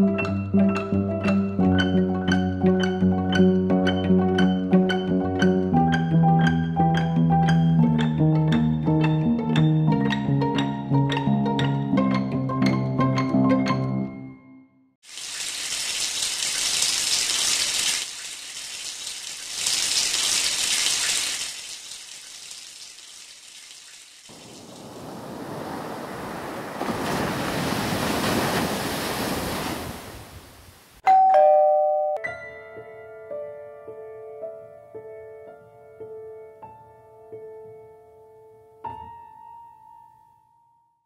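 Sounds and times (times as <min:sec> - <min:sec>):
doorbell ding-dong: 0:31.0 - 0:32.6.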